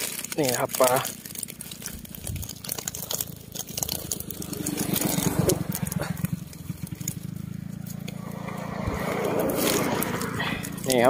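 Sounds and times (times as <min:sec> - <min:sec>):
rustling: 0:00.0 - 0:11.0
small engine running: 0:00.0 - 0:11.0.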